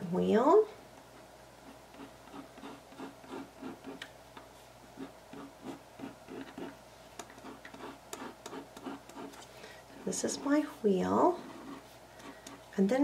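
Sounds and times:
pen scratching on cardboard: 1.6s - 4.0s, 5.0s - 6.7s, 7.3s - 9.4s, 11.3s - 12.6s.

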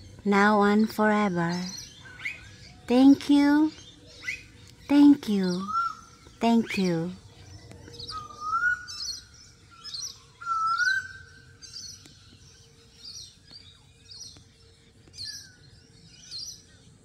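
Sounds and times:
birds chirping: 0.0s - 17.0s
rising whistled bird note: 8.0s - 11.4s.

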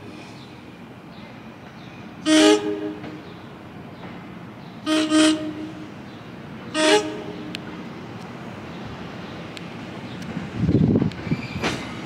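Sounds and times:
train horn toots: 2.2s - 3.2s, 4.8s - 5.9s, 6.7s - 7.6s.

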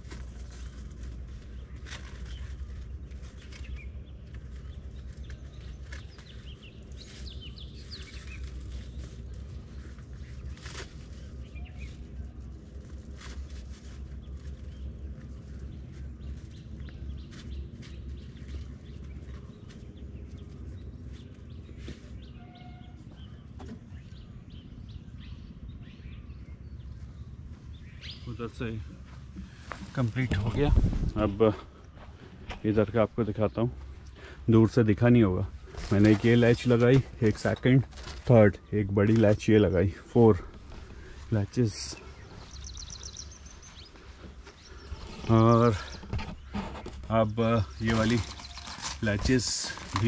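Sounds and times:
small birds chirping: 0.0s - 50.0s
steady low rumble: 23.2s - 49.9s
wind on microphone: 30.3s - 31.4s.

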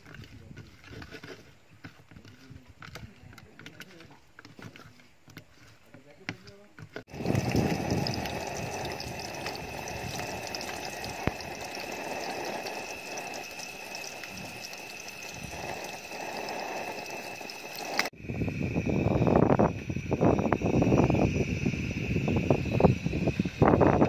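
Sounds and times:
fish frying in hot oil: 7.1s - 18.2s.

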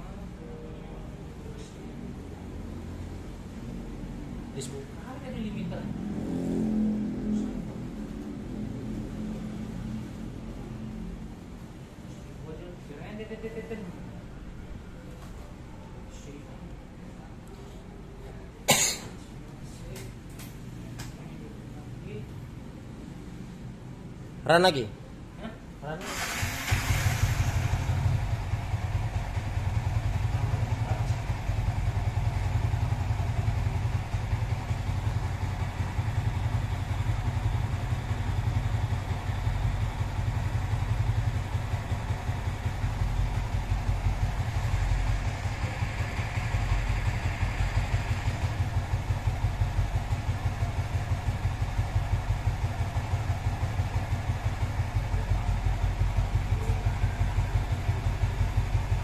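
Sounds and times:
motorcycle engine idling: 26.1s - 59.0s.

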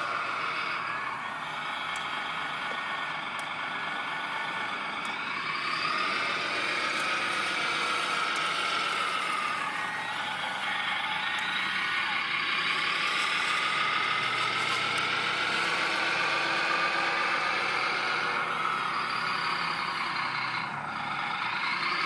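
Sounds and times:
toy loader electric motor whine: 0.0s - 22.0s.

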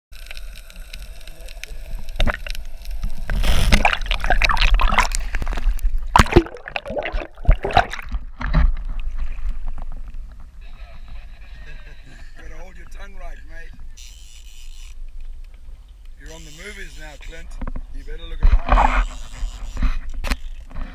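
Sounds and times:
water splashes: 0.4s - 10.4s
muffled water sloshing and gurgling: 1.0s - 11.6s.

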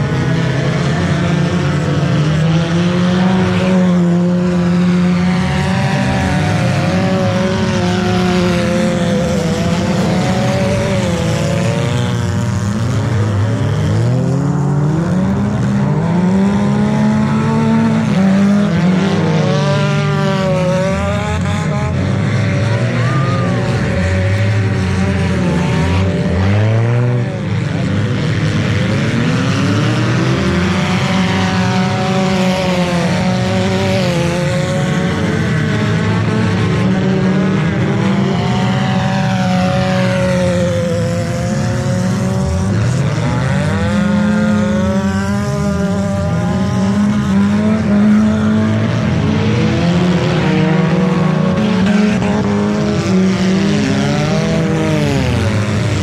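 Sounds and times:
car engines revving: 0.0s - 56.0s.

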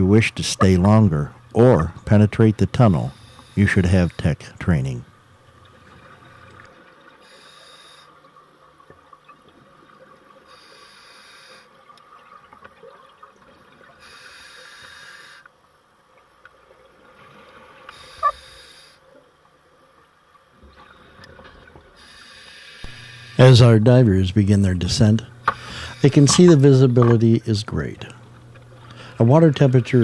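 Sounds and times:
regulator breathing hiss and bubbles: 0.0s - 4.7s, 5.4s - 8.4s, 10.4s - 11.9s, 13.9s - 15.5s, 17.9s - 19.1s, 21.9s - 30.0s
faint hum: 0.0s - 30.0s.

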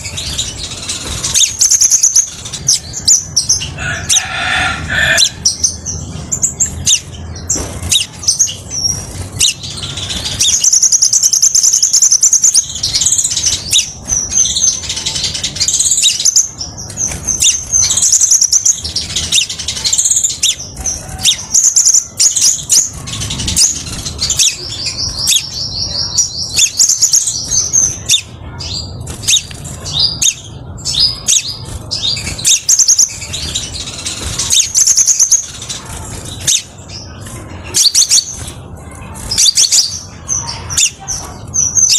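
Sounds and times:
bird singing chirps and trills: 0.0s - 41.9s.

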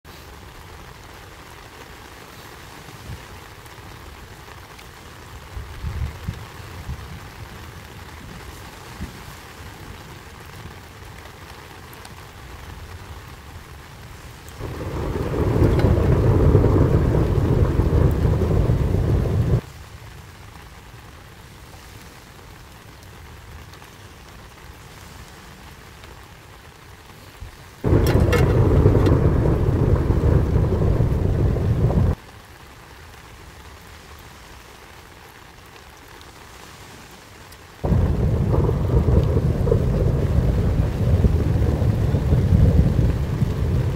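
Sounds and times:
steady rain: 0.0s - 43.9s
thunder rolling: 14.6s - 19.6s, 27.8s - 32.2s, 37.8s - 43.9s.

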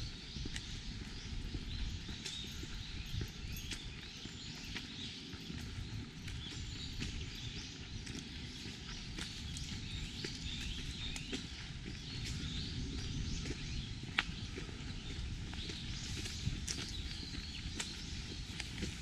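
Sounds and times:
footsteps on a path: 0.0s - 19.0s
small birds chirping: 0.0s - 19.0s.

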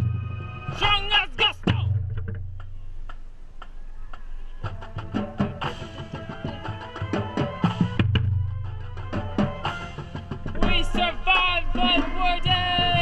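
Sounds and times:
marching band playing: 0.0s - 2.4s, 4.6s - 13.0s
drum hits: 0.0s - 2.8s, 7.0s - 13.0s.

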